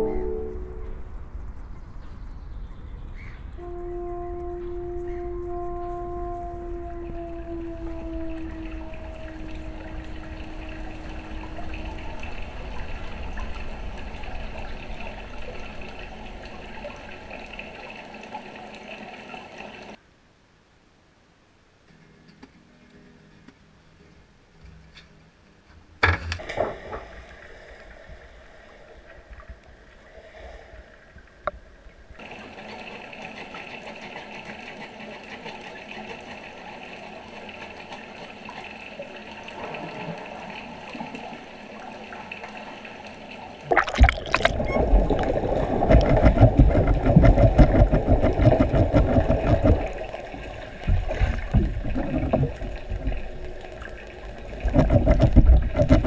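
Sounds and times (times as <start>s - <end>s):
crackling water turbulence: 0.0s - 20.0s, 26.4s - 56.0s
underwater churning water: 5.5s - 20.0s, 26.4s - 56.0s.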